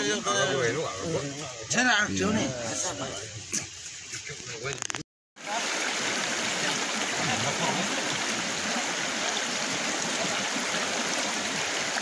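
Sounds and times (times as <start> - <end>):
river flowing over stones: 3.9 - 12.0.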